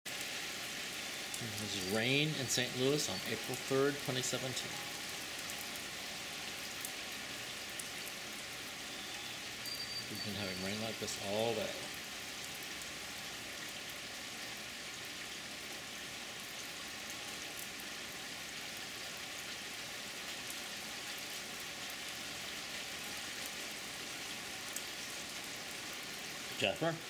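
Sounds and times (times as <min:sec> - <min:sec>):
rain on wooden deck: 0:00.0 - 0:27.0.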